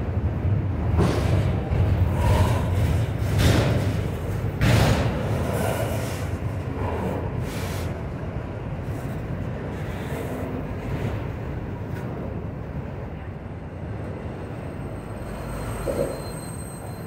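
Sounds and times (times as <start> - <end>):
train cars clattering: 0.0 - 13.0
train wheels rumbling on rail: 0.0 - 17.0.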